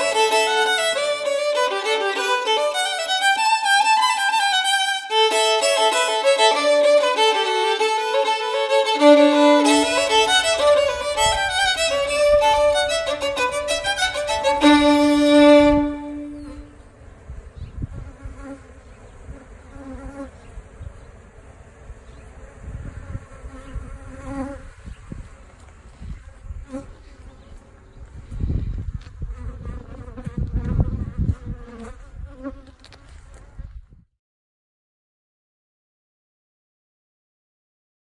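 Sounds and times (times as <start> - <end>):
solo violin playing lively tune: 0.0 - 16.9
bees buzzing: 4.7 - 28.2.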